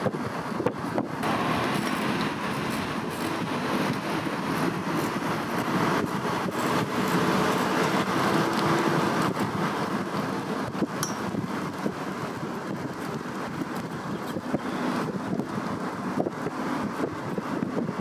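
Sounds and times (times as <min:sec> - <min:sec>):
bicycle road noise: 0:00.0 - 0:18.0.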